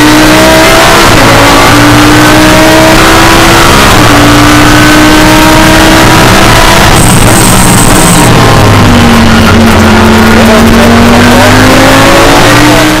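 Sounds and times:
race car engine revving: 0.0 - 13.0.

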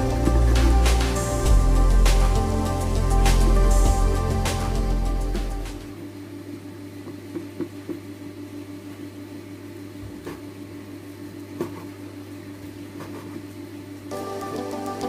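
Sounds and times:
low hum: 0.0 - 6.8.

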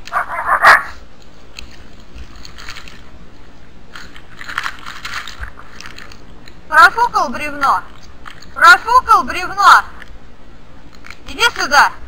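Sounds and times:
irregular crunching: 0.0 - 6.7.

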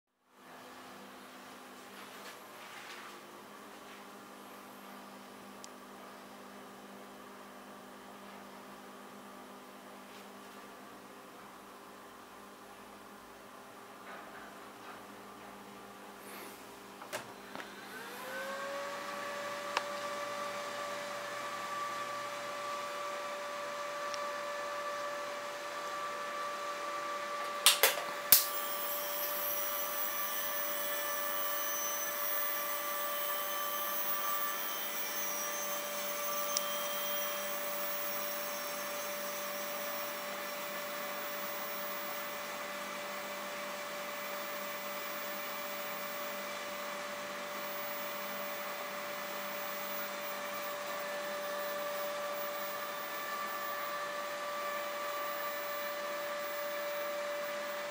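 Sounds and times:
faint high-pitched whine: 15.7 - 57.9
cooling fan whirring: 16.2 - 57.9
igniter snaps: 27.4 - 28.6.

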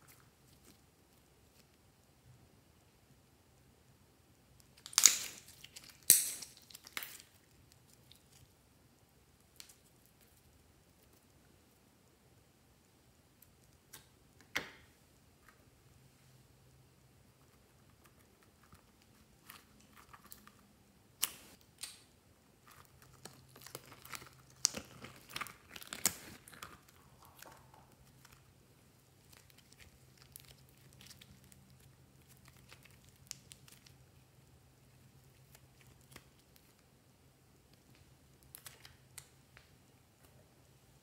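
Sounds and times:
slime squelching and crackling: 4.6 - 8.6, 22.6 - 36.9.

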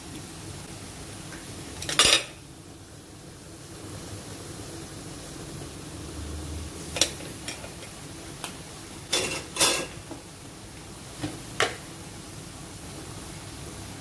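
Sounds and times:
food sizzling in pan: 0.0 - 14.0
metal utensils clinking on wok: 1.8 - 2.4, 9.1 - 10.0.

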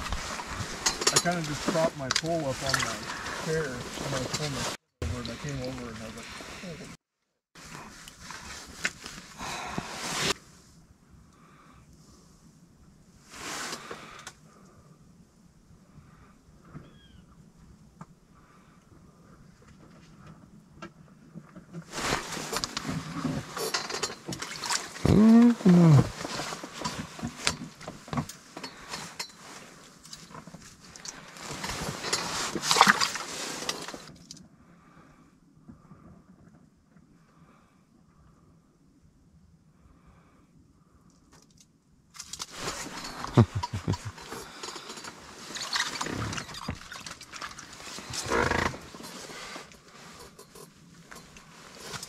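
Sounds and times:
rustling: 7.6 - 10.7, 21.7 - 34.3, 42.2 - 52.0
fish flapping: 32.5 - 33.9, 45.4 - 48.3.

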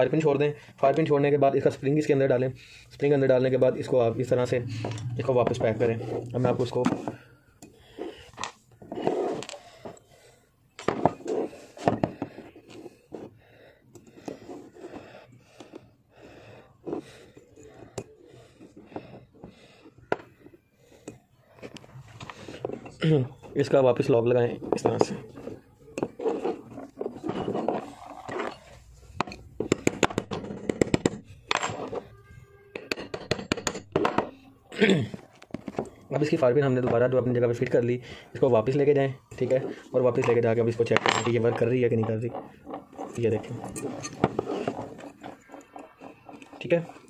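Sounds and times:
metal parts scraping: 24.6 - 34.4, 39.3 - 47.0.

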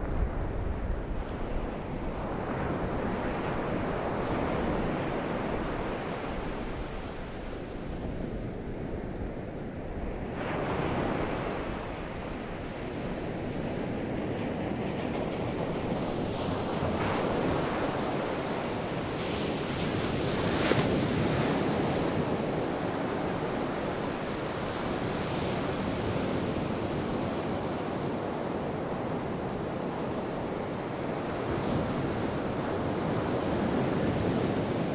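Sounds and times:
waves breaking on beach: 10.4 - 34.9.

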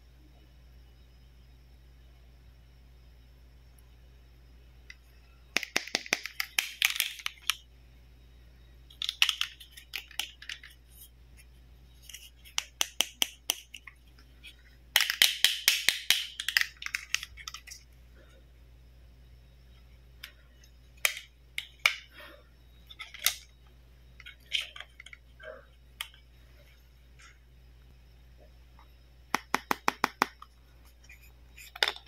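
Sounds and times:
plastic toy clicks and taps: 5.6 - 7.6, 9.0 - 10.7, 12.5 - 13.8, 15.0 - 17.6, 29.3 - 30.5.

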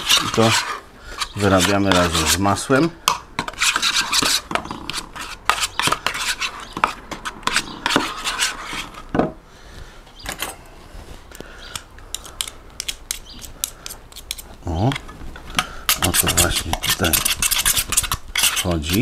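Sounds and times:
spoon mashing and scraping in dish: 0.0 - 9.1, 11.7 - 19.0.

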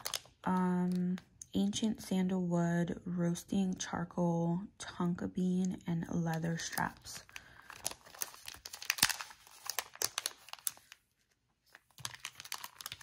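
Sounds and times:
plastic bag crinkling: 0.0 - 1.2, 6.4 - 13.0.

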